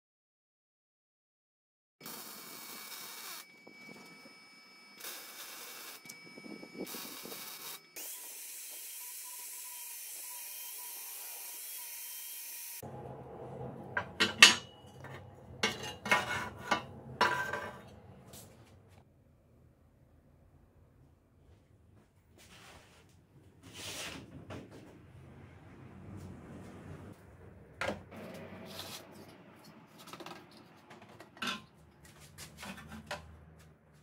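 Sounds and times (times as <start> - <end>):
welding crackling hiss: 2.0 - 3.5
angle grinder whining: 2.0 - 18.5
low hum: 12.8 - 21.2, 24.8 - 34.0
metallic knocks and clanks: 13.4 - 18.6, 30.0 - 31.8.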